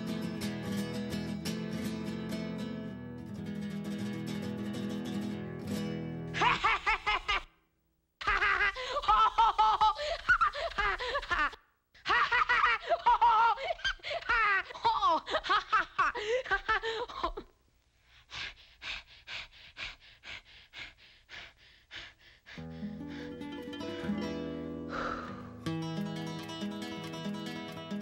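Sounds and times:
cartoon boy laughing: 6.4s - 7.5s, 8.2s - 16.8s.

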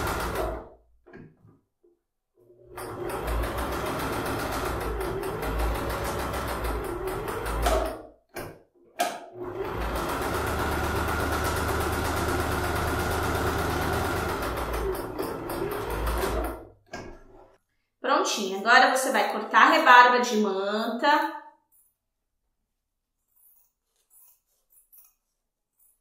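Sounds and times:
sewing machine stitching: 0.0s - 0.8s, 2.4s - 8.5s, 9.2s - 17.6s.

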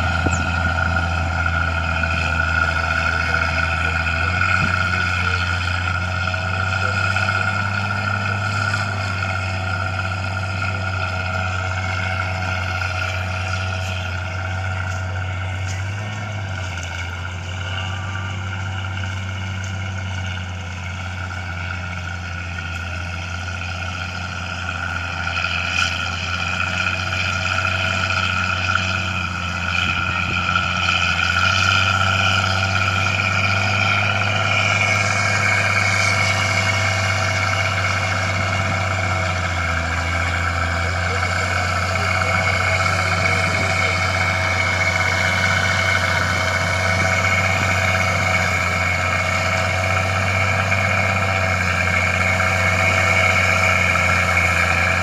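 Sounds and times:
high whine: 0.0s - 15.9s
bulldozer diesel engine running: 0.0s - 55.0s.

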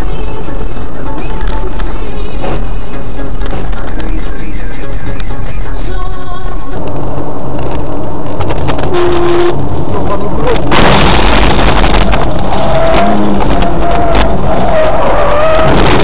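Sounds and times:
distorted road and engine noise: 0.0s - 16.0s
harsh rush of noise: 6.7s - 16.0s.

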